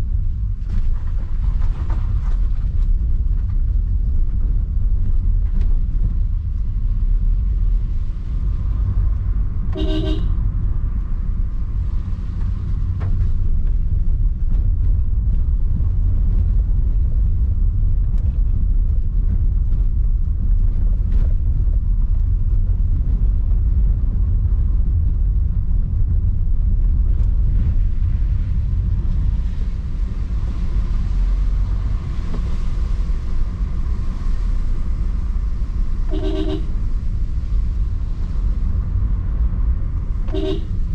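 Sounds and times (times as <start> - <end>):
road and engine rumble in car: 0.0 - 40.9
car horn toot: 9.7 - 10.4, 36.1 - 36.8, 40.3 - 40.8.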